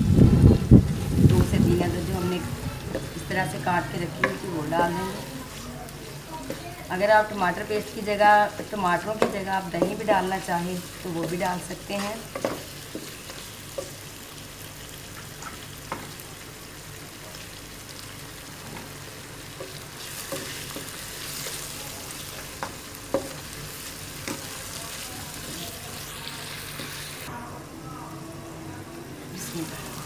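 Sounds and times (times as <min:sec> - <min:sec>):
food sizzling in a wok: 0:00.0 - 0:27.4, 0:28.1 - 0:30.0
spatula knocking on pan: 0:04.2 - 0:04.5, 0:08.5 - 0:10.3, 0:12.2 - 0:13.2.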